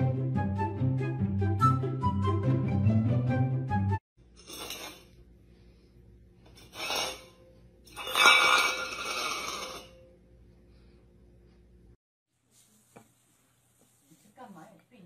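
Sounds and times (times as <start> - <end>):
music: 0.0 - 4.0
metal bowl scraping on tile floor: 4.3 - 5.3, 6.4 - 10.1.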